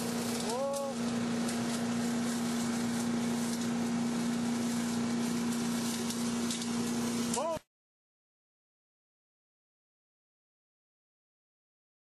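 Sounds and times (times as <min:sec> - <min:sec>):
leaf vacuum running: 0:00.0 - 0:07.6
leaves ticking in vacuum: 0:00.0 - 0:07.6.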